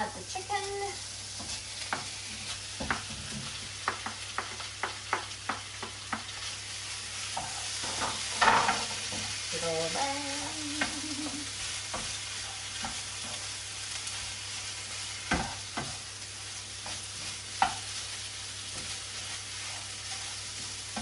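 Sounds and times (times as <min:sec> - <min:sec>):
food sizzling in a pan: 0:00.0 - 0:21.0
wooden spatula knocking pan: 0:02.7 - 0:06.4.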